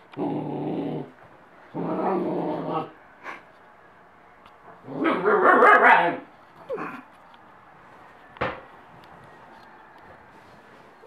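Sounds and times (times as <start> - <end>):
puppy growling: 0.1 - 3.0, 4.8 - 7.1.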